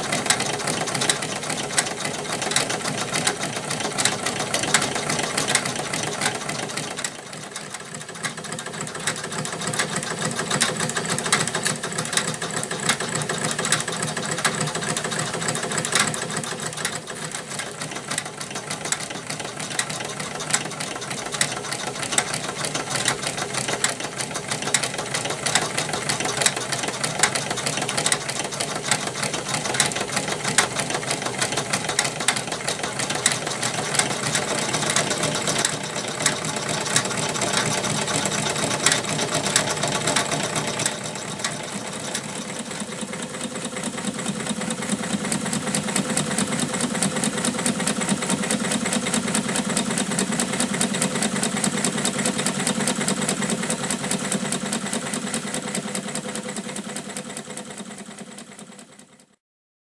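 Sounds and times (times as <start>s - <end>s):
toy steam engine clattering: 0.0s - 59.0s.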